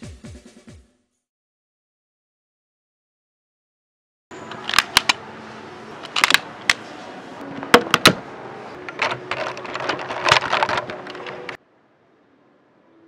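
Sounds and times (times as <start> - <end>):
plastic toy parts clicking: 4.5 - 5.2, 6.0 - 6.8, 8.9 - 11.6
plastic rattling: 8.9 - 11.6.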